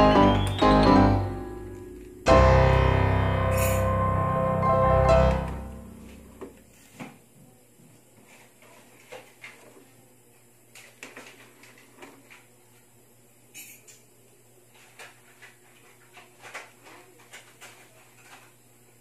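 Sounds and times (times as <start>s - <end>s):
loud sustained startup chord: 0.0s - 6.5s.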